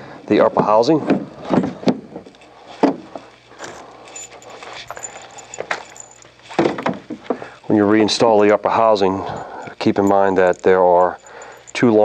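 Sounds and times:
metal bolts clinking: 3.6s - 7.2s, 9.0s - 12.0s.

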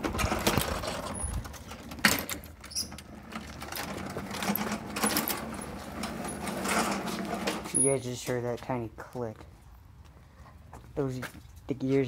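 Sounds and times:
riding lawn mower running: 0.0s - 7.7s.

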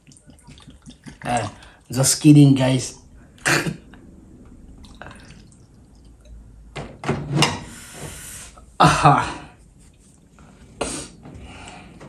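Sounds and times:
breath: 7.6s - 8.6s, 10.8s - 12.0s.

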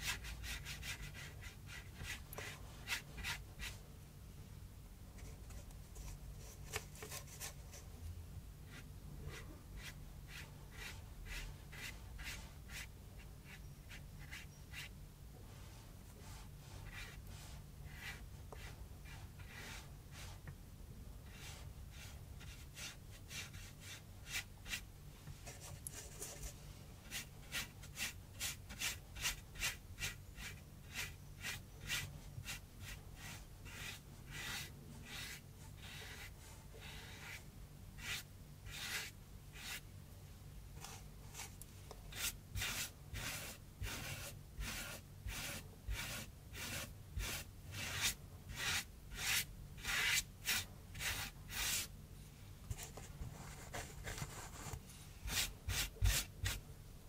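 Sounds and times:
paintbrush swishing on cardboard: 15.5s - 20.4s, 21.3s - 37.4s, 40.8s - 51.9s, 52.7s - 56.6s.

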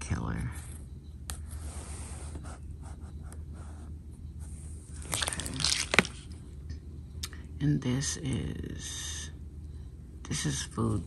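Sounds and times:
packaging crinkling and scraping: 4.9s - 6.4s.

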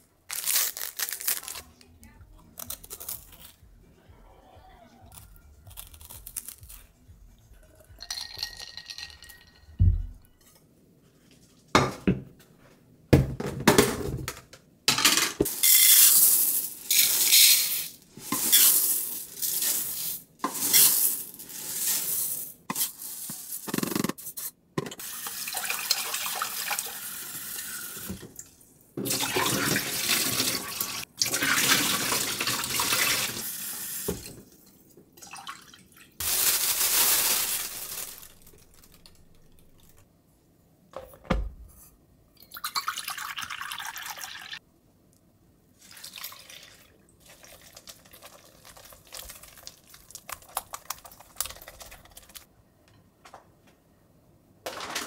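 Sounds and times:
tap water running into pot: 25.0s - 28.2s
dry rice pouring: 36.2s - 38.9s.

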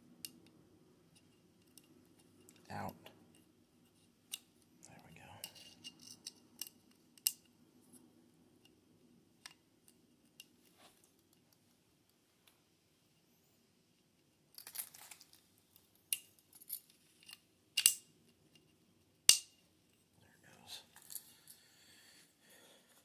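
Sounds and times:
small metal parts clicking: 14.5s - 18.1s.

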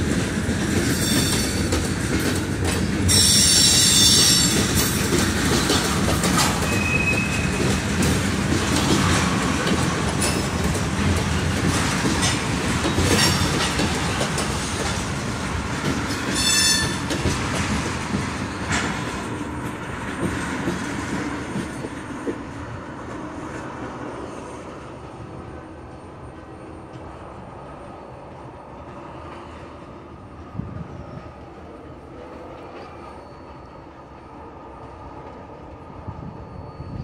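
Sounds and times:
freight train wheels clacking: 0.0s - 36.9s
high wheel squeal: 3.1s - 4.7s, 6.6s - 7.8s, 16.3s - 17.1s, 32.7s - 34.1s, 36.1s - 37.0s.

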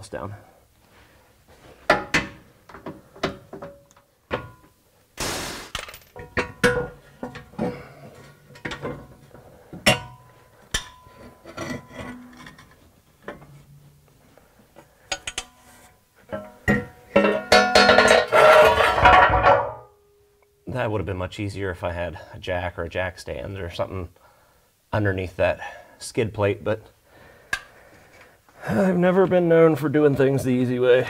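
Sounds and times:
hand tools clanking on metal: 5.9s - 13.9s, 15.0s - 19.9s.

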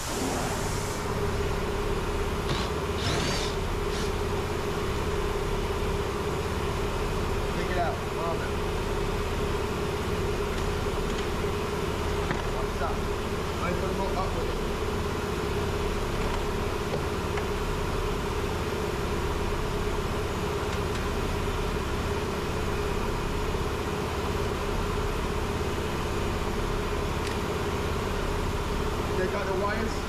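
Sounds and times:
machine drone: 0.0s - 6.5s.

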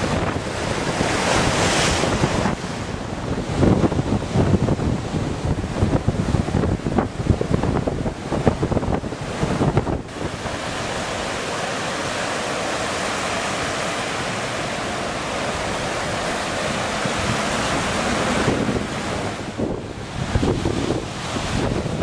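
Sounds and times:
wind buffeting microphone: 0.0s - 22.0s
vehicles splashing through floodwater: 9.1s - 22.0s.

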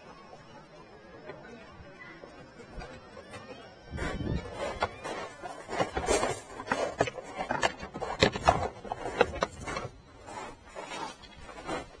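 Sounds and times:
footsteps on gravel: 4.2s - 12.0s.

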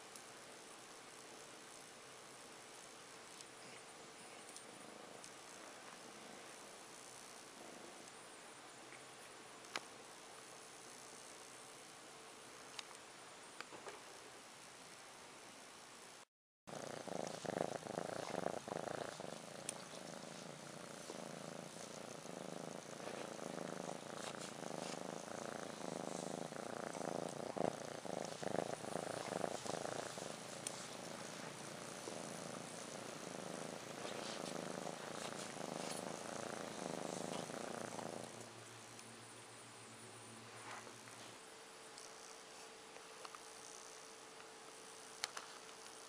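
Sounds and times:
kitten purring: 16.7s - 38.5s.

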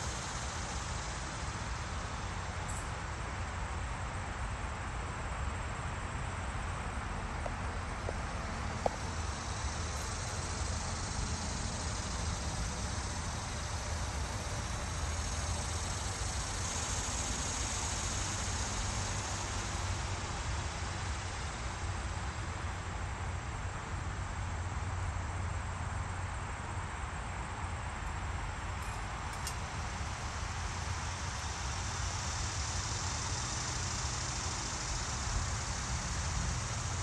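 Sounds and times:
broad hiss: 0.0s - 4.3s, 6.2s - 37.0s
higher hiss: 8.0s - 22.5s, 28.7s - 37.0s.

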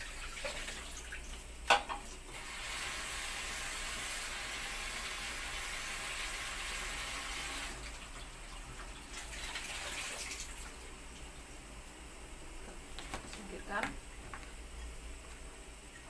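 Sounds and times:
tap water running into bowl: 0.0s - 10.8s.

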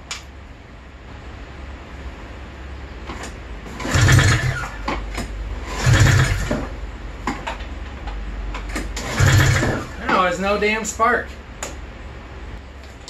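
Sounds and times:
engine spinning over: 3.0s - 6.8s, 8.6s - 10.2s
recoil pull starter: 3.1s - 6.7s, 8.7s - 10.2s.

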